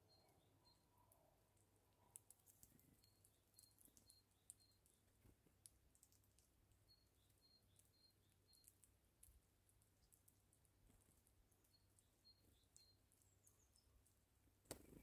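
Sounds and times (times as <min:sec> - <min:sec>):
bird husking seeds clicks: 0:02.1 - 0:04.7, 0:14.6 - 0:15.0.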